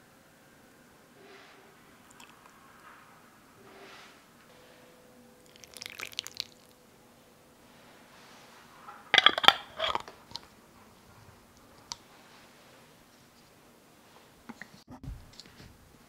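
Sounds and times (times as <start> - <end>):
syrup dripping into glass jar: 5.5 - 6.7
metal lid twisted onto glass jar: 9.2 - 10.1.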